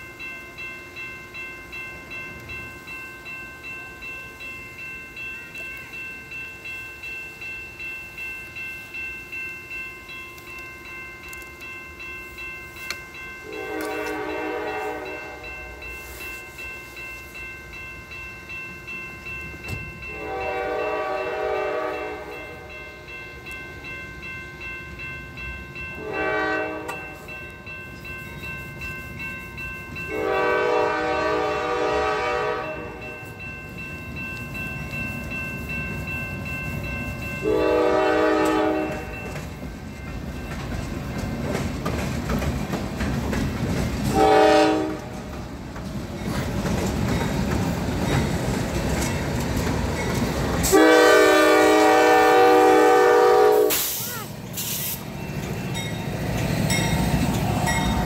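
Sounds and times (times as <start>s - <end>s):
crossing bell ringing: 0.0s - 58.0s
locomotive air horn blasts: 13.4s - 16.2s, 20.1s - 22.7s, 26.0s - 27.2s, 30.1s - 33.0s, 37.4s - 39.2s, 44.1s - 45.1s, 50.6s - 54.9s.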